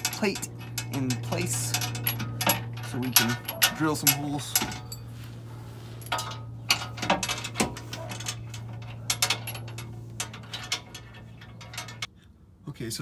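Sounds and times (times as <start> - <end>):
metallic clicks and clinks: 0.0 - 5.2, 6.0 - 12.1
steady low hum: 0.0 - 12.6.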